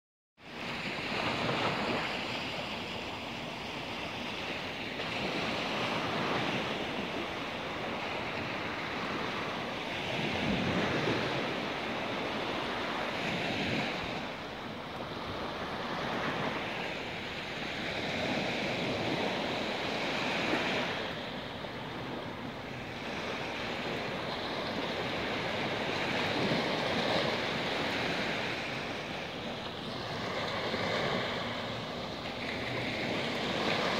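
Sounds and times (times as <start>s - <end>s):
wind: 0.4s - 33.9s
rushing water: 19.5s - 33.9s.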